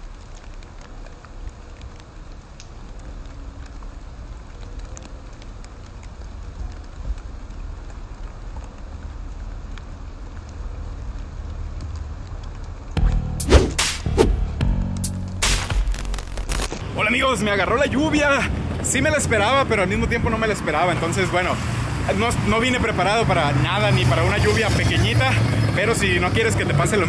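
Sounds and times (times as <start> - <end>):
rain hissing on pavement: 0.0 - 13.5, 14.9 - 27.0
low rumble: 12.4 - 17.3.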